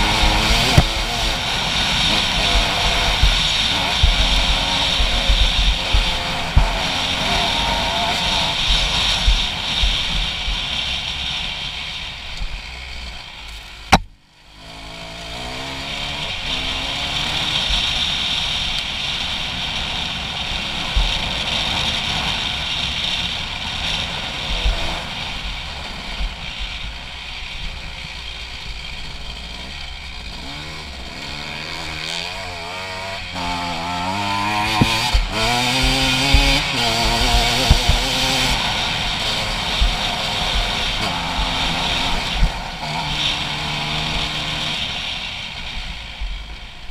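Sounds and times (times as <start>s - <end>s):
wind noise: 0.0s - 12.6s, 32.9s - 45.1s
dirt bike engine revving: 0.0s - 46.9s.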